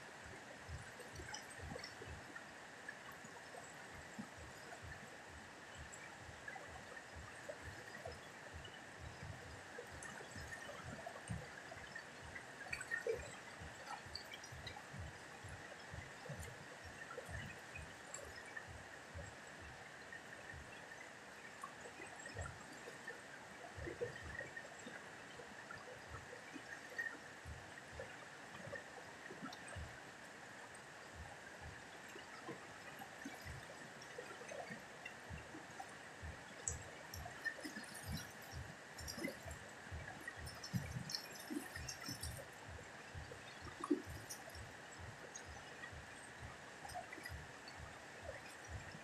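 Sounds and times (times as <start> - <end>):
river flowing: 0.0 - 49.0
soft low thumps: 34.8 - 49.0.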